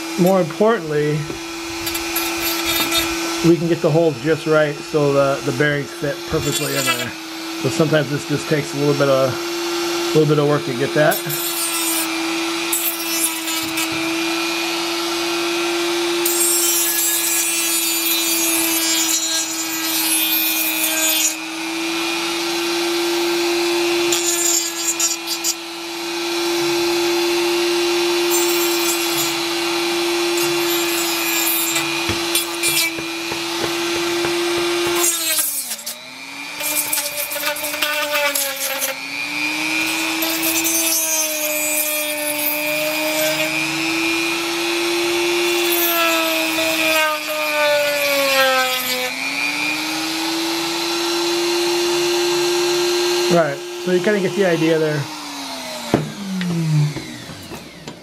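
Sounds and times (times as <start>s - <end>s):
rotary tool whining: 0.0s - 7.8s, 8.9s - 58.0s
sanding drum grinding plastic: 0.0s - 15.2s, 26.4s - 49.1s.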